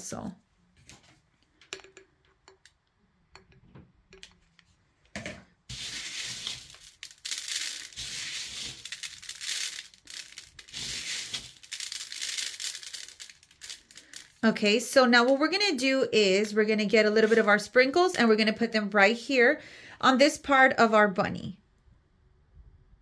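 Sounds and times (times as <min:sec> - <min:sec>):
small clicks of falling sprinkles: 0:05.7 - 0:14.4
sprinkles rattling onto metal tray: 0:05.7 - 0:14.5.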